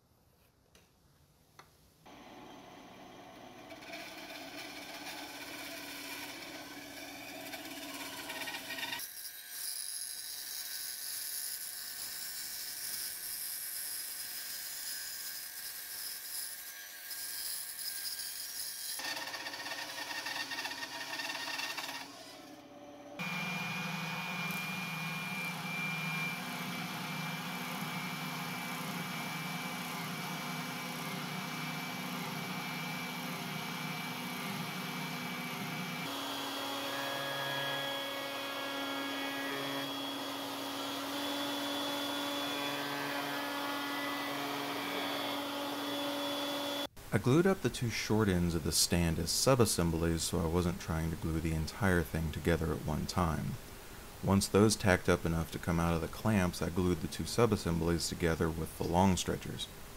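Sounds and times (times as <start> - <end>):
sanding drum whining: 2.1 - 9.1, 17.1 - 46.9
bandsaw cutting wood: 2.1 - 46.9.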